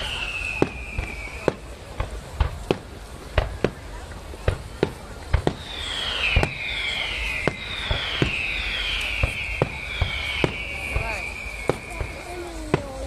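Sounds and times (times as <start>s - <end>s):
high falling whistle: 0.0s - 1.7s, 5.5s - 13.0s
fireworks bursting with sharp bangs: 0.0s - 13.0s.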